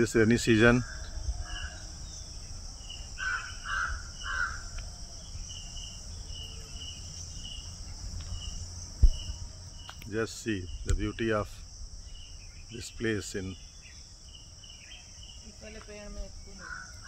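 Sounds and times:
crickets and insects droning: 0.0s - 17.0s
crow cawing: 3.2s - 4.8s, 16.6s - 17.0s
faint bird chirps: 12.0s - 17.0s.

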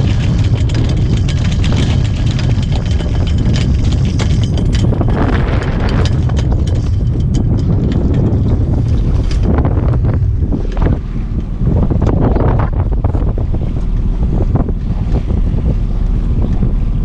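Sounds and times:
sail flapping and clattering: 0.0s - 17.0s
wind buffeting microphone: 0.0s - 17.0s.

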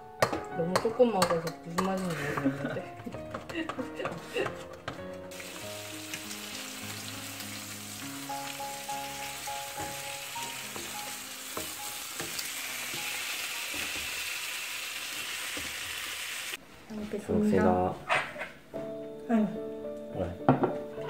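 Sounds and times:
soft background music: 0.0s - 14.5s, 17.1s - 21.0s
wooden spoon stirring in a pan: 1.8s - 5.8s, 9.4s - 16.2s
steak sizzling in a skillet: 5.3s - 16.6s.

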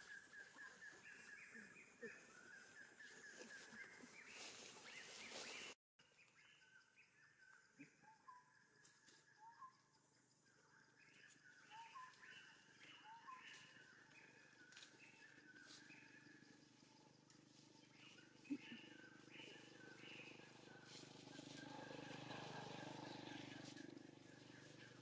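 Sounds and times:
faint outdoor ambience: 0.0s - 25.0s.

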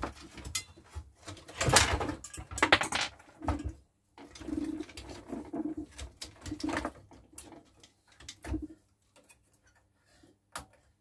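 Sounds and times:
clicks and knocks of plastic parts: 0.0s - 11.0s.

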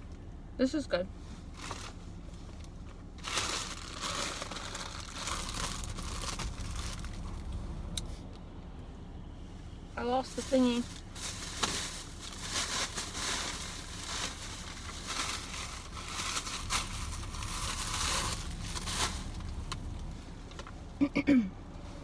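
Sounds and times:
plastic bag crinkling: 3.2s - 7.5s, 10.8s - 19.7s.

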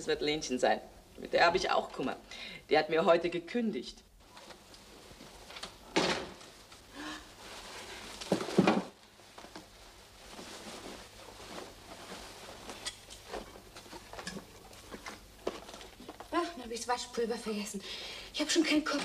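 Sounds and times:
paper and coat rustling: 4.2s - 17.5s
parcels thudding on table: 5.9s - 6.5s, 8.3s - 9.0s.

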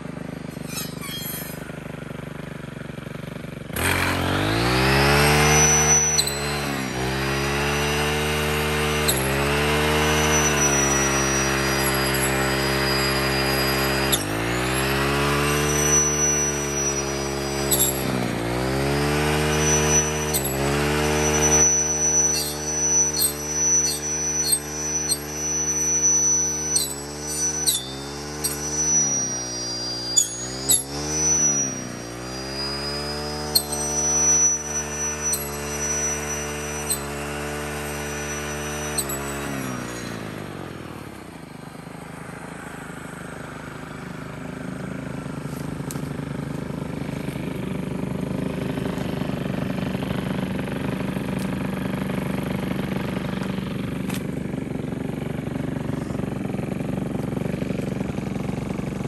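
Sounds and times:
brush cutter engine running: 0.0s - 59.0s.

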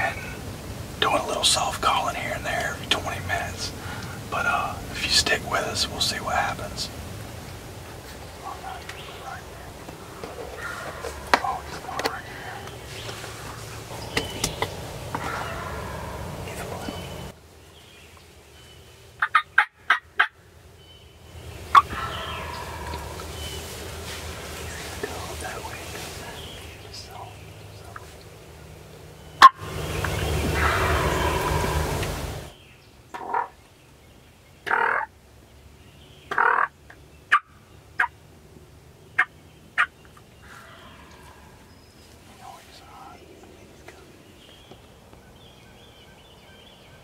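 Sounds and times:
turkey gobbling: 10.2s - 12.5s, 14.0s - 17.3s, 19.2s - 20.4s, 21.7s - 23.6s, 29.4s - 32.5s, 36.3s - 36.7s.

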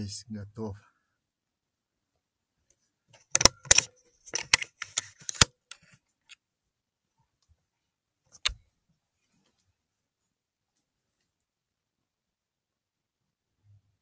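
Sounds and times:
rifle clicks and metallic rattles: 3.2s - 6.4s.

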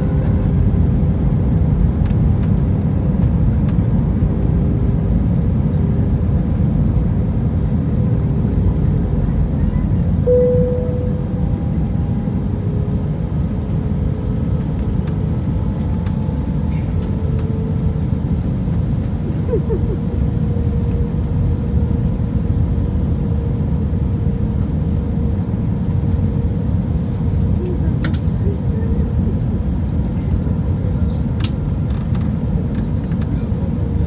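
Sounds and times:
airflow and jet engines rumble: 0.0s - 34.0s
mid-pitched hum: 0.0s - 34.0s.

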